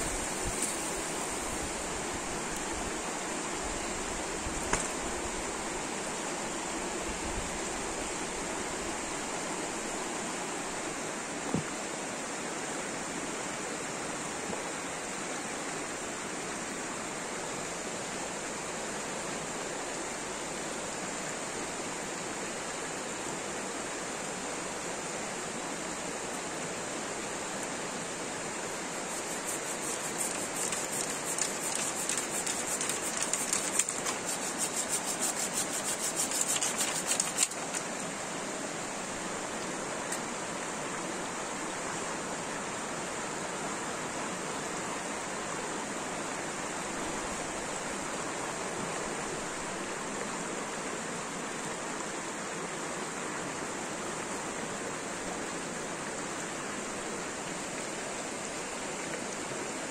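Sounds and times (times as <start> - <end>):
river rushing over stones: 0.0 - 59.9
pruning saw cutting a branch: 29.0 - 37.8.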